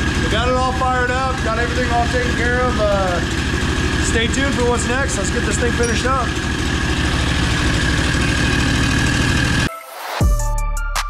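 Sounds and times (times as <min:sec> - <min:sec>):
electronic music with deep bass: 0:09.1 - 0:11.0.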